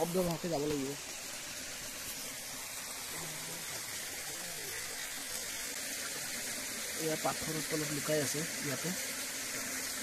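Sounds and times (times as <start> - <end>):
stream running over rocks: 0.0 - 10.0.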